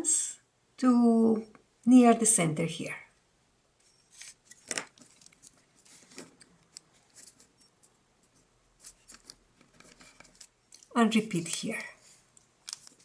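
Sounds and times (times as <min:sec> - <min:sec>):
paper crinkling as folded: 0:04.1 - 0:07.5, 0:08.8 - 0:13.0.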